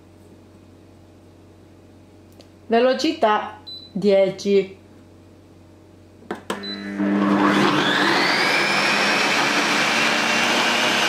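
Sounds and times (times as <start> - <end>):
kitchen robot motor whining: 7.0 - 11.0.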